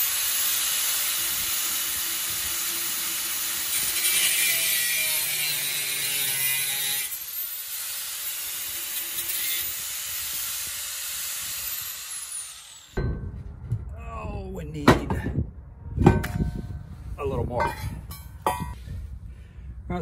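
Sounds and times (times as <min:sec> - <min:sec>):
grinder cutting steel: 0:00.0 - 0:13.0.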